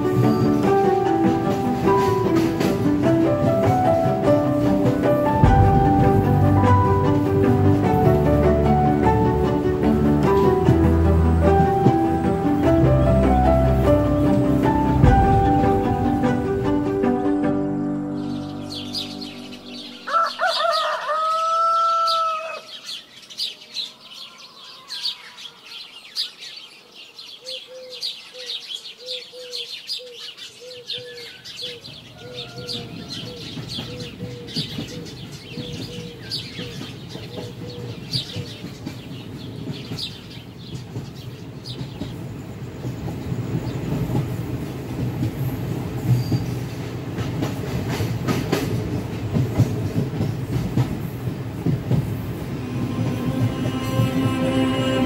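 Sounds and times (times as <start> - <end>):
train rumbling: 0.0 - 22.1, 31.6 - 55.0
small birds chirping: 18.1 - 52.6
rooster crowing: 19.9 - 22.8, 32.1 - 33.5.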